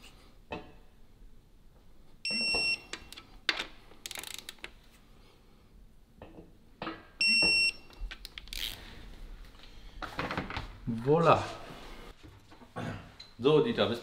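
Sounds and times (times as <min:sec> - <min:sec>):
torque wrench beeping: 0:07.2 - 0:08.0.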